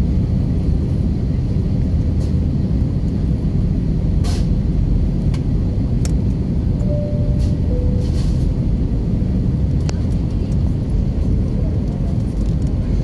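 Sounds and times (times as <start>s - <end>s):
jet engines rumbling: 0.0s - 13.0s
airflow rushing: 6.4s - 11.5s.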